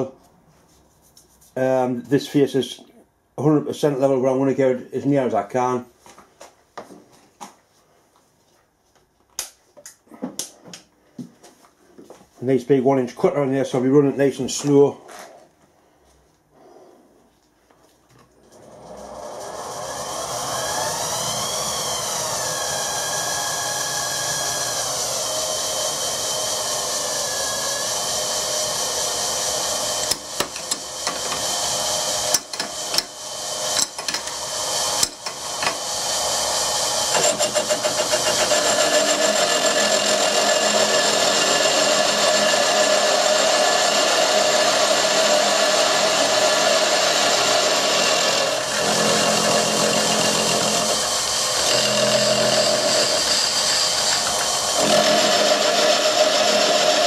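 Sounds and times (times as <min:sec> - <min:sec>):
milling machine motor whining: 0:18.6 - 0:57.0
cutter cutting cast iron: 0:25.2 - 0:57.0.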